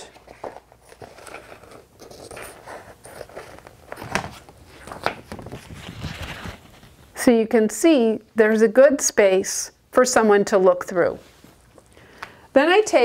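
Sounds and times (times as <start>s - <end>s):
plastic sheet crackling: 4.1s - 7.2s.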